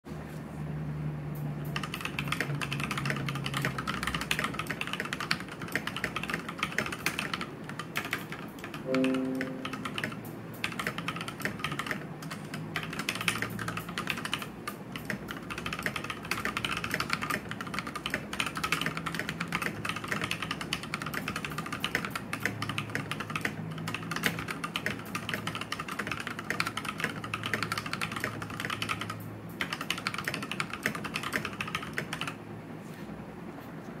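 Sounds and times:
fast typing on mechanical keyboard: 1.6s - 32.4s.

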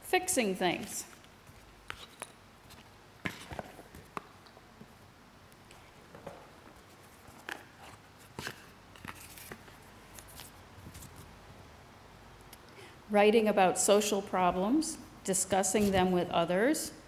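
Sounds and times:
paper cards rustling and tapping: 5.6s - 11.2s.

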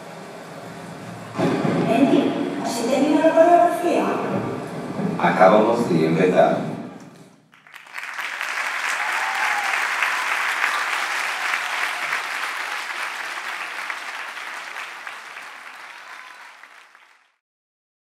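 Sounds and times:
audience applauding: 7.5s - 17.4s.

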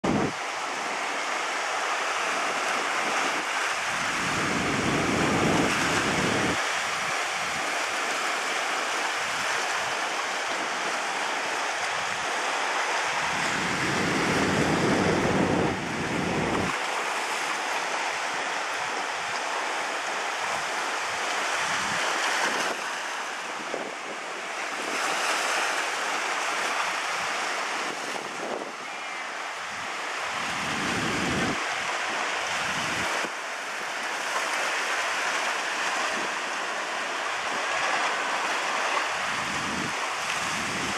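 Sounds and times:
wind buffeting microphone: 0.0s - 1.0s, 2.6s - 7.8s, 13.0s - 16.9s, 27.0s - 28.9s, 29.7s - 33.3s, 39.0s - 40.9s
surf breaking on rocks: 0.0s - 40.9s.

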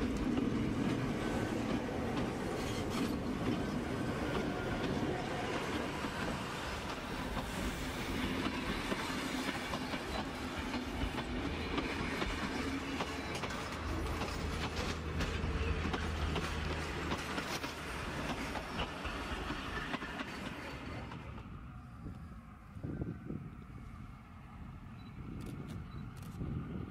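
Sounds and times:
train wheels clattering on rails: 0.0s - 21.5s.

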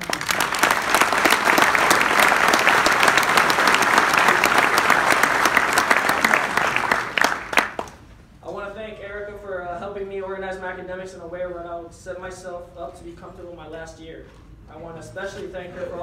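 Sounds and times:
close sharp hand claps: 0.0s - 8.0s
roomful of people applauding: 0.0s - 8.1s.

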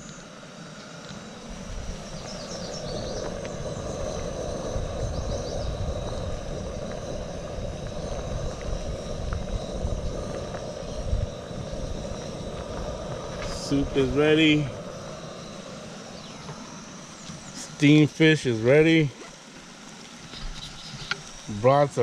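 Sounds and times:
burner flame roaring: 0.0s - 22.0s
soup boiling: 1.5s - 17.5s
bird chirps: 2.0s - 4.0s, 5.0s - 5.9s, 16.0s - 18.5s, 20.3s - 21.2s.

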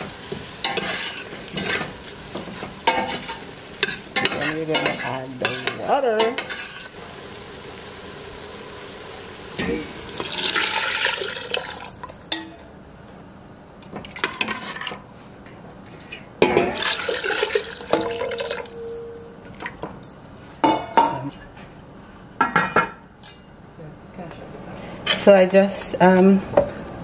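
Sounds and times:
water pouring into pot: 7.0s - 12.3s, 16.7s - 19.8s
bowl clinking against pot: 17.7s - 19.4s.

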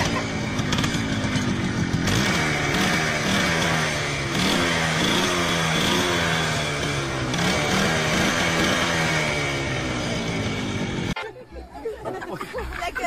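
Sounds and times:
motorcycle engine revving: 0.0s - 11.2s.

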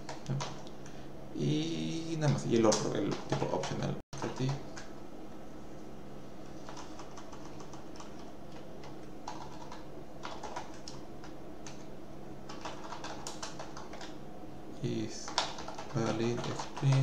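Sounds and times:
faint steady hum: 0.0s - 17.0s
typing on keyboard: 2.2s - 4.6s, 6.6s - 11.8s, 12.5s - 14.2s, 15.2s - 17.0s.

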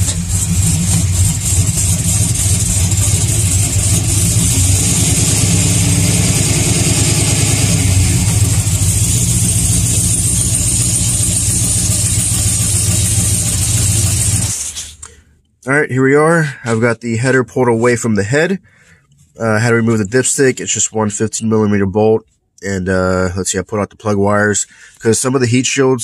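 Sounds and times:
truck engine idling: 0.0s - 15.1s
exhaust leak ticking: 0.0s - 15.2s.

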